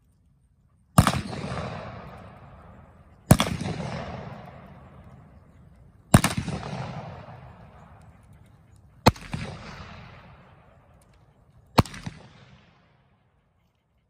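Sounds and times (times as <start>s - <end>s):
revolver shots with rolling echo: 1.0s - 5.4s, 6.1s - 8.0s, 9.0s - 10.8s, 11.8s - 12.9s.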